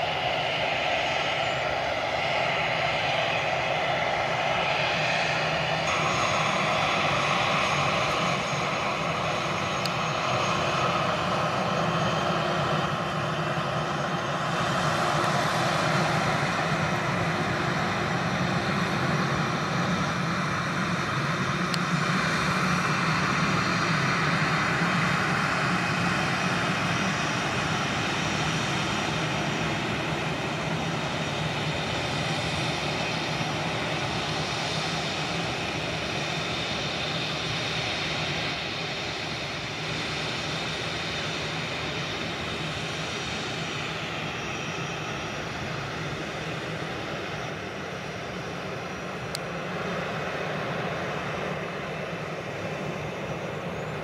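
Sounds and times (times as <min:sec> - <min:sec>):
jet engines roaring: 0:00.0 - 0:54.0.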